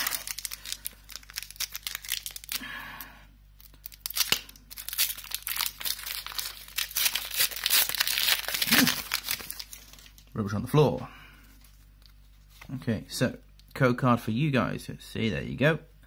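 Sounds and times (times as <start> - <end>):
foil wrapper tearing and crinkling: 0.0 - 2.7, 3.6 - 10.3.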